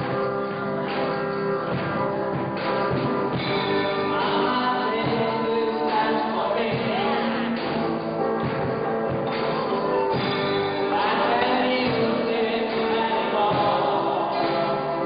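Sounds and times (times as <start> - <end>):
guitar: 0.0 - 15.0
person singing: 3.4 - 8.6, 9.5 - 15.0.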